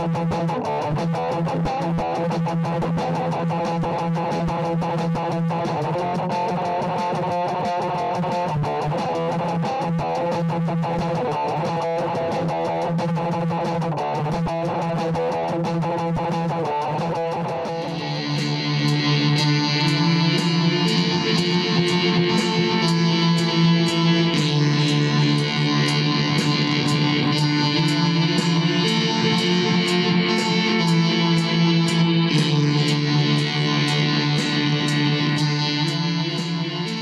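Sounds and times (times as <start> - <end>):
electric guitar music: 0.0 - 37.0
sharp beat hits: 0.0 - 37.0.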